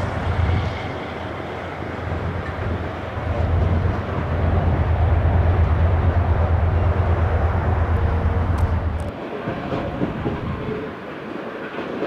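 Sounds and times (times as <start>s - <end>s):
freight train wheels rumbling on rail: 0.0s - 12.0s.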